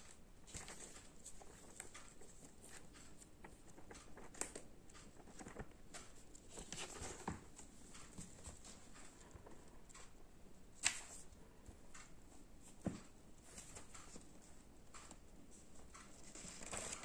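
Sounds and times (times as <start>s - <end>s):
paper pages rustling: 0.5s - 4.6s, 6.5s - 8.8s, 16.2s - 17.0s.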